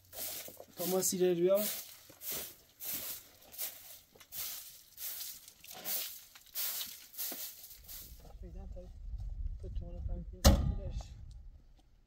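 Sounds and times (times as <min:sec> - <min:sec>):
broom sweeping earthen floor: 0:00.0 - 0:08.2.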